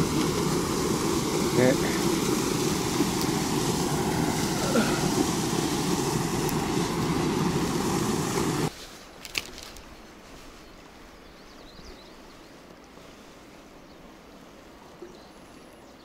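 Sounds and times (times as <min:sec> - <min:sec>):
water rushing over weir: 0:00.0 - 0:08.7
quiet river flow: 0:00.0 - 0:16.0.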